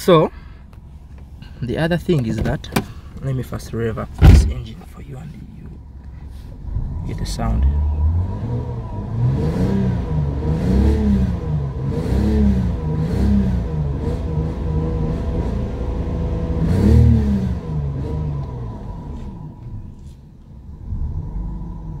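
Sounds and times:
car engine revving: 6.6 - 22.0.

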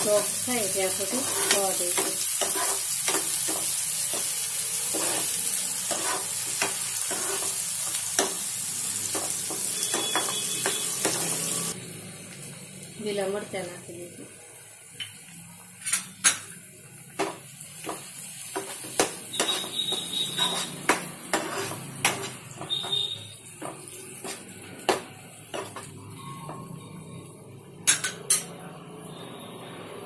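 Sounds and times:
frying sizzle: 0.0 - 30.0
utensil scraping and knocking pan: 18.6 - 23.0.

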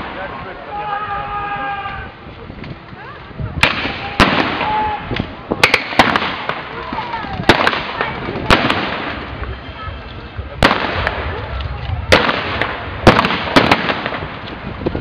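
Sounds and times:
blank gunshots with echo: 5.6 - 6.8, 7.5 - 9.4, 10.6 - 14.6.

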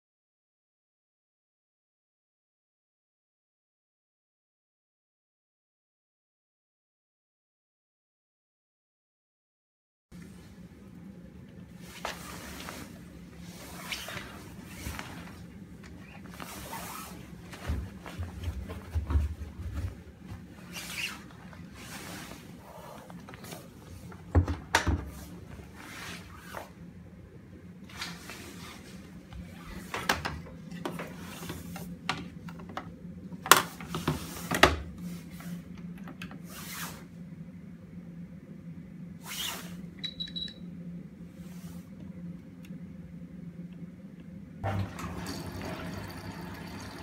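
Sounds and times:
steady low hum: 10.2 - 45.0
towels rustling: 11.8 - 22.6
washing machine door knocks and clicks: 24.3 - 25.2.

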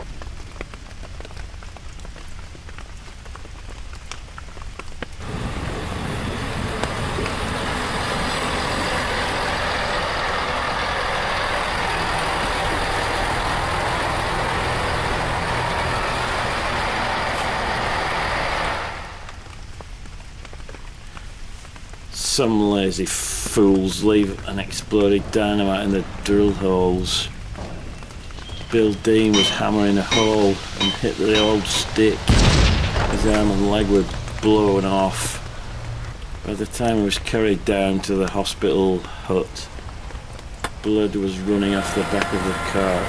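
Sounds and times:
train passing: 5.2 - 19.2, 23.5 - 32.4, 41.1 - 43.0
low rumble: 22.4 - 38.8.

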